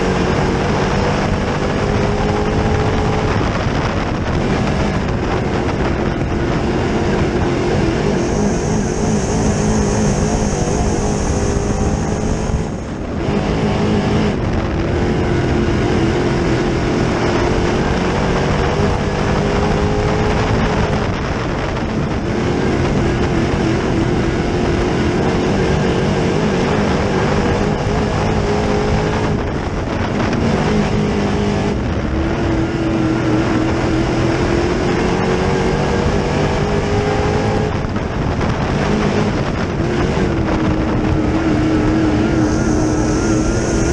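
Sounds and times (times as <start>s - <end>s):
race car engine revving: 0.0s - 43.9s.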